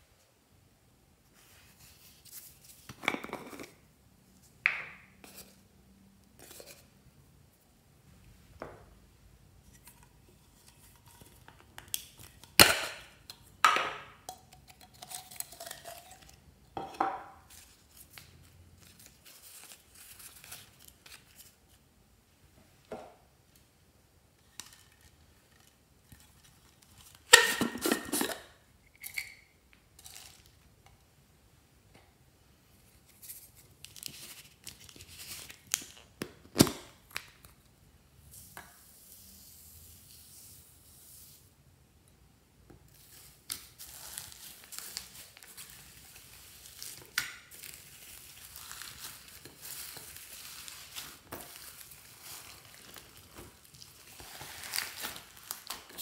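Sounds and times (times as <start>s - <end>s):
rattle of small contents: 30.0s - 30.6s.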